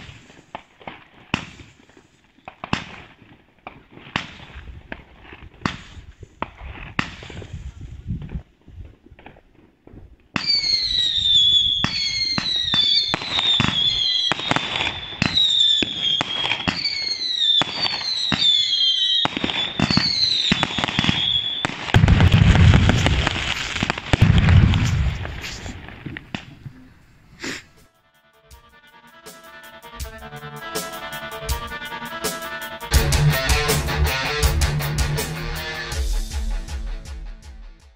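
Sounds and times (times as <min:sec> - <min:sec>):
firework crackling: 0:00.0 - 0:07.8, 0:10.3 - 0:27.9
firework whistles with pops: 0:00.0 - 0:08.5, 0:10.3 - 0:27.9
deep firework booms: 0:19.2 - 0:27.0.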